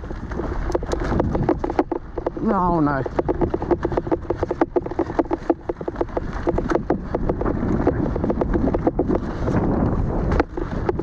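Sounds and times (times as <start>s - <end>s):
bike rattling over rough ground: 0.0s - 11.0s
tyres rumbling: 0.0s - 11.0s
wind on microphone: 0.0s - 11.0s.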